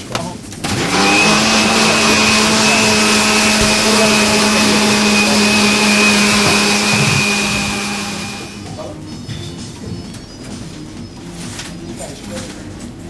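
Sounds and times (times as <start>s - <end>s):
electric blender running: 0.6s - 8.8s.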